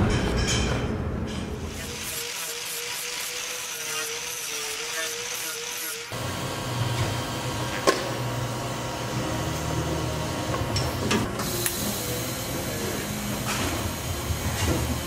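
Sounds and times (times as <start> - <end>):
welder humming: 1.6 - 15.0.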